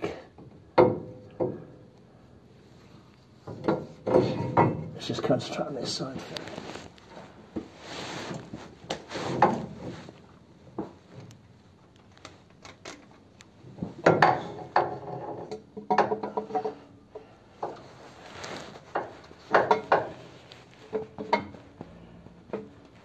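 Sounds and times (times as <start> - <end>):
rustling: 2.6 - 14.0, 16.7 - 23.0
metal clinks and knocks: 18.9 - 23.0.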